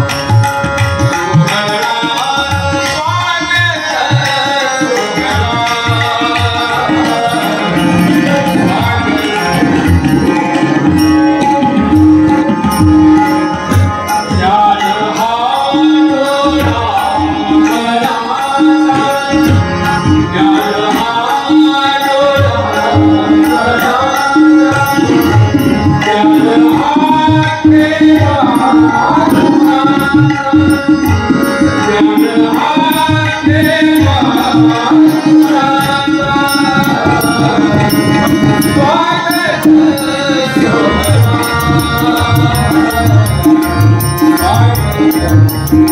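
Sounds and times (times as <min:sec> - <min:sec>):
harmonium: 0:00.0 - 0:45.9
tabla beat: 0:00.0 - 0:45.9
person singing: 0:14.2 - 0:45.9.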